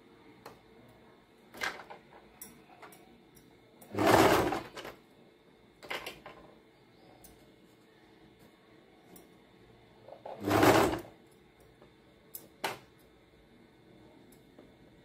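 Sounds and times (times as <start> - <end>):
sewing machine stitching: 3.9 - 4.8, 10.3 - 11.1.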